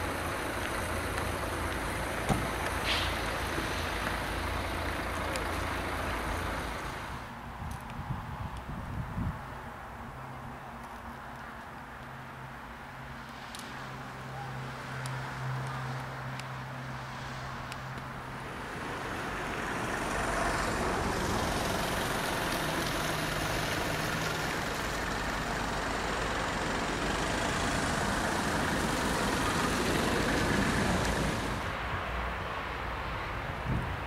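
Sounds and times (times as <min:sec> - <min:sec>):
vehicle passing: 0:13.4 - 0:33.2.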